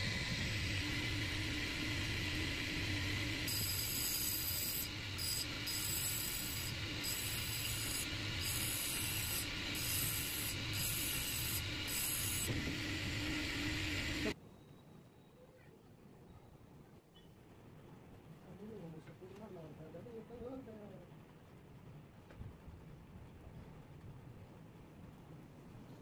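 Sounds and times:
grinding wheel humming: 0.0 - 14.4
metal tip grinding hiss: 0.0 - 14.4.

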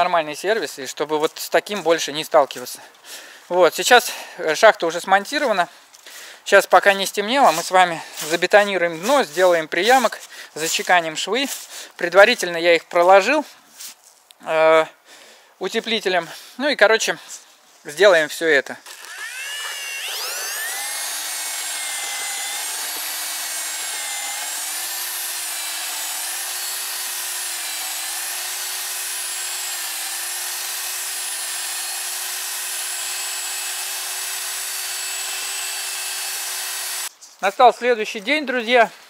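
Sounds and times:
electric drill mixing concrete: 18.8 - 37.1.

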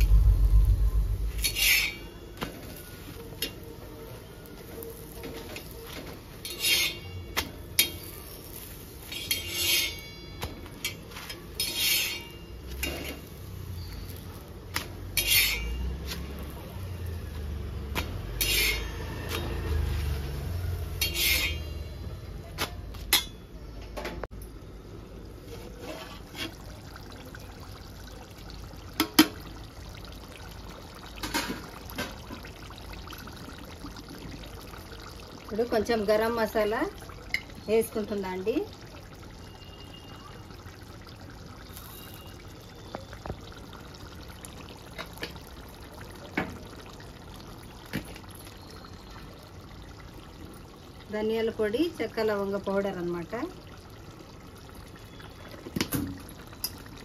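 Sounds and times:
metal utensils scraping a pan: 1.3 - 2.8, 5.2 - 13.9, 14.8 - 16.3, 18.0 - 19.9, 20.9 - 22.0, 25.5 - 26.7.

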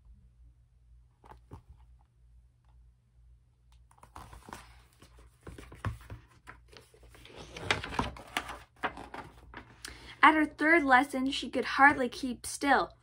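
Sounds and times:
book pages rustling: 1.2 - 2.0, 3.8 - 9.8.

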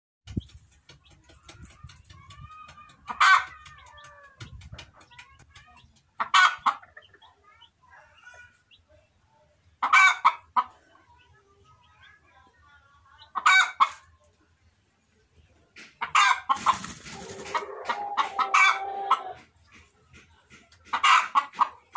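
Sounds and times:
soft chicken calls and chirps: 0.3 - 21.9
loud chicken calls: 16.0 - 19.5.

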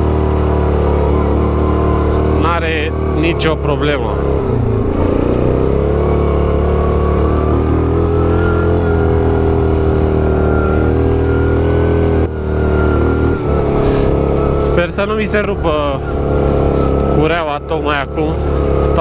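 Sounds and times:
atv engine running under load: 0.0 - 19.0.

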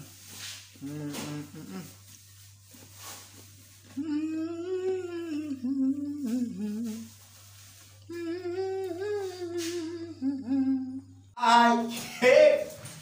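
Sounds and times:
person humming: 0.8 - 2.0, 3.9 - 7.2, 8.0 - 11.3.

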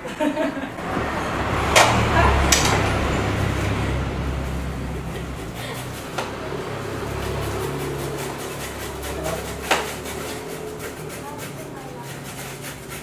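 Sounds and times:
papaya scraping on metal grater: 4.5 - 13.0.

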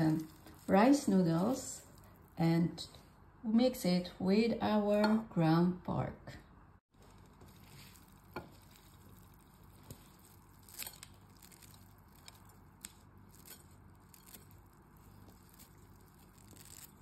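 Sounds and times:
scissors snipping dry noodles: 7.6 - 17.0.

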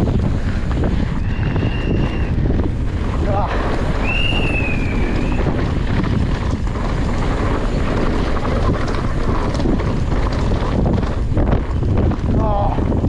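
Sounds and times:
bike rattling and clattering: 0.0 - 13.0
wind rushing over microphone: 0.0 - 13.0.

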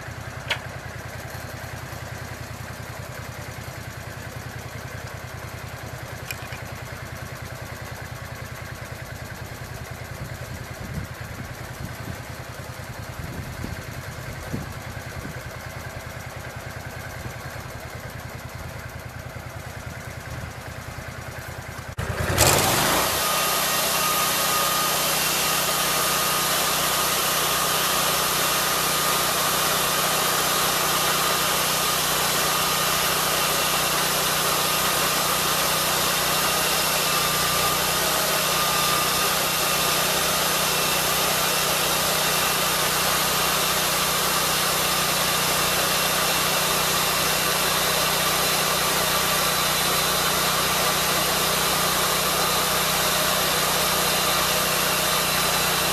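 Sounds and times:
sawmill engine revving: 21.5 - 55.9
circular blade sawing log: 22.0 - 55.9.

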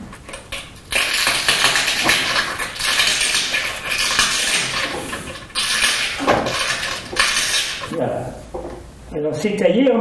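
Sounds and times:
small clicks of glass flakes: 0.1 - 8.0
tool scraping glass edge: 0.2 - 8.0.

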